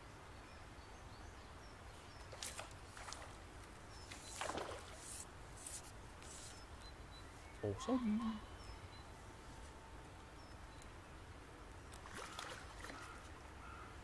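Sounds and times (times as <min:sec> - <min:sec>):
birds chirping faintly: 0:00.0 - 0:14.0
fish splashing in water: 0:04.1 - 0:05.0, 0:12.0 - 0:13.2.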